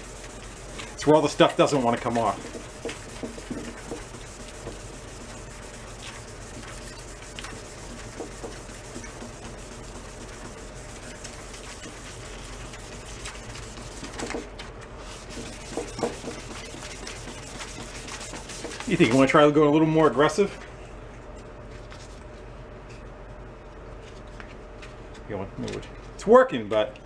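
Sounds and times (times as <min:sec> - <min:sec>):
wet sandpaper scrubbing metal: 0:00.0 - 0:14.4, 0:15.0 - 0:19.3.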